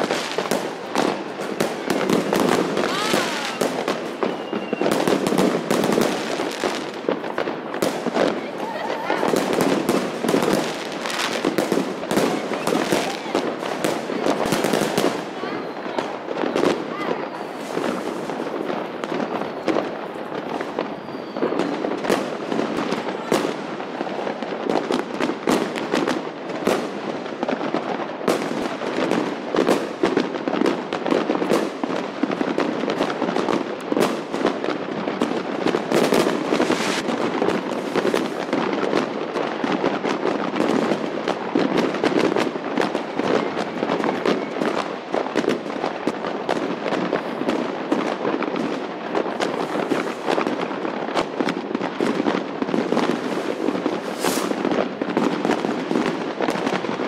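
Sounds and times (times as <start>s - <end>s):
fireworks crackling and banging: 0.0s - 57.0s.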